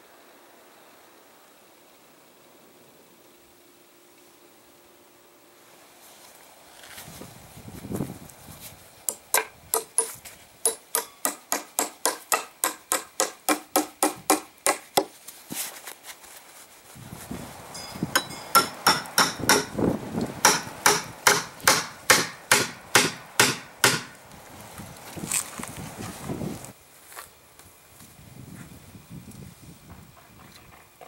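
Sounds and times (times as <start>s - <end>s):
hammer striking steel bar: 9.1s - 14.8s, 18.1s - 19.8s, 20.4s - 24.2s.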